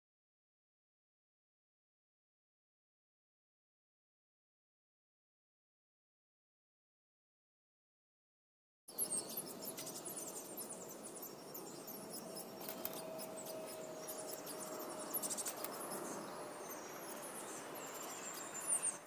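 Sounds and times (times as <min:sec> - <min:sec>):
bird chirping high and thin: 0:08.9 - 0:19.0.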